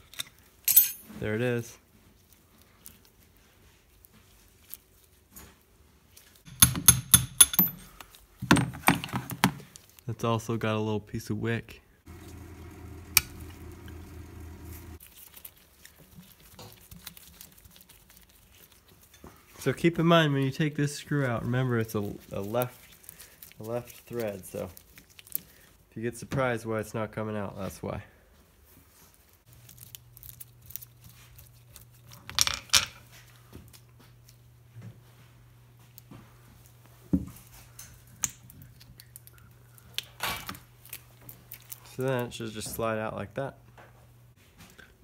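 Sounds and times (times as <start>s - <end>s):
small steel parts clinking: 0.0s - 1.1s, 6.5s - 8.0s
low steady hum: 12.1s - 15.0s.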